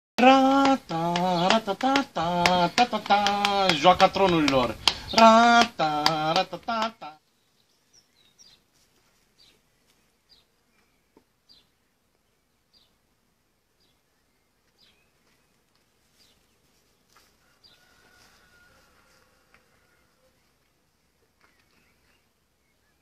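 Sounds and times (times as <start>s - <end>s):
bird chirping: 7.2s - 8.7s, 9.4s - 13.0s, 13.8s - 15.6s, 21.4s - 23.0s.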